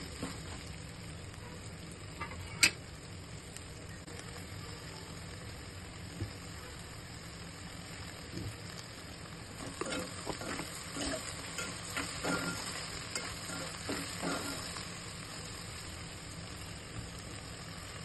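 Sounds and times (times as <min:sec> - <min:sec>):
okra sizzling in a pot: 0:00.0 - 0:18.0
spoon scraping a pot: 0:09.6 - 0:14.7.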